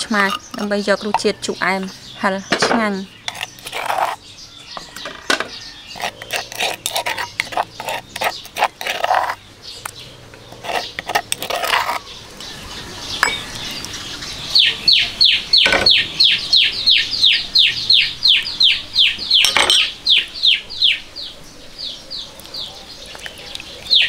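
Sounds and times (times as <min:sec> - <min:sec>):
spoon scraping in a mortar: 0:00.0 - 0:01.9, 0:03.2 - 0:13.8.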